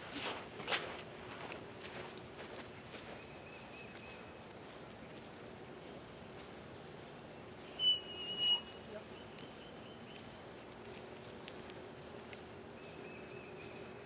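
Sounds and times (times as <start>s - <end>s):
high whistled note: 7.8s - 8.8s.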